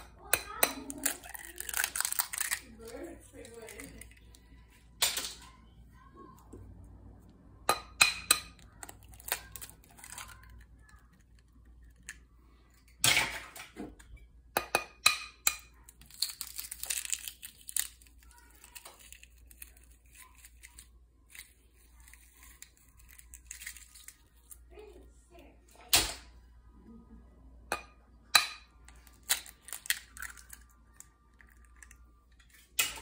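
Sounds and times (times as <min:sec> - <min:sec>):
eggshells crackling apart: 0:01.0 - 0:04.1, 0:08.8 - 0:10.6, 0:15.9 - 0:24.6, 0:28.9 - 0:32.1.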